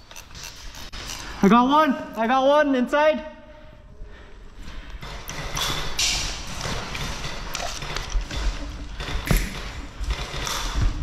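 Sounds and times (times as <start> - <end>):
footsteps: 4.1 - 11.0.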